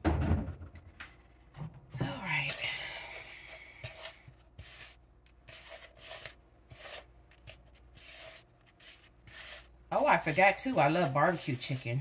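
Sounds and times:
chicken wings scraping in flour: 3.1 - 12.0.

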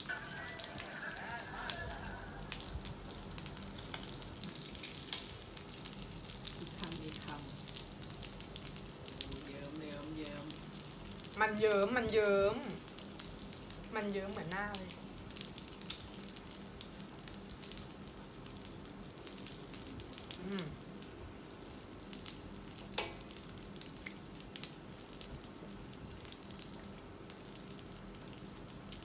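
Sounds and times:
fat crackling: 0.0 - 16.6
pork sizzling on a grill pan: 0.0 - 29.0.

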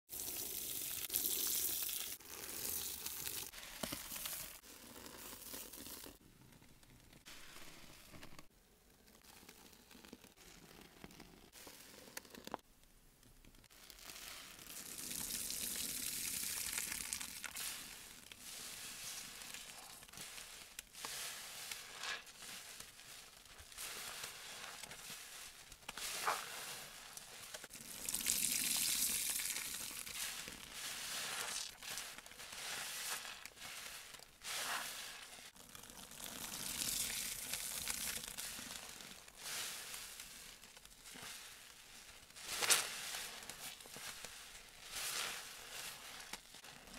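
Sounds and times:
sponges squelching in suds: 16.7 - 46.9.

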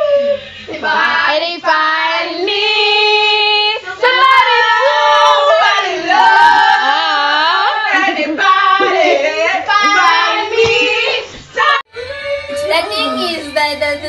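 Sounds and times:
girl singing: 11.6 - 14.0.

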